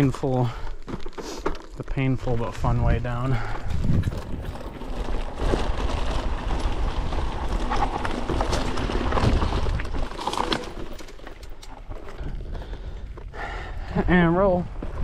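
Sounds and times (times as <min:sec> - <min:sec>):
tyres crunching over dirt and stones: 0:00.0 - 0:13.4
bike rattling over bumps: 0:00.0 - 0:13.7
wind buffeting microphone: 0:02.7 - 0:10.0.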